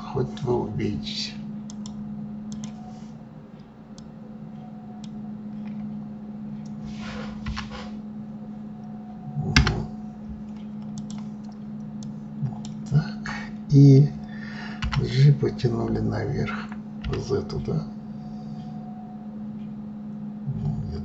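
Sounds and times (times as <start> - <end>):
low electrical hum: 0.0 - 21.0
faint clicks: 1.7 - 2.8.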